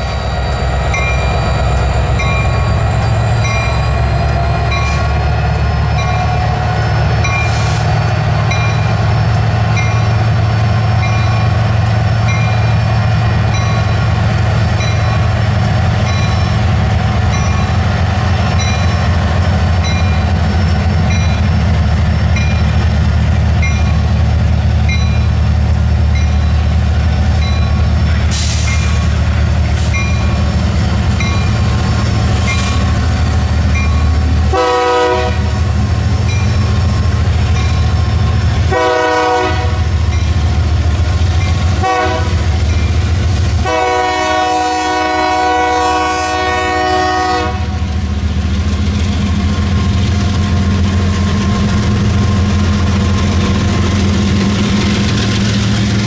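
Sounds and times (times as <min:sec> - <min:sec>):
diesel locomotive drone: 0:00.0 - 0:56.0
train air horn blasts: 0:34.5 - 0:35.6, 0:38.7 - 0:39.9, 0:41.8 - 0:42.5, 0:43.6 - 0:47.8.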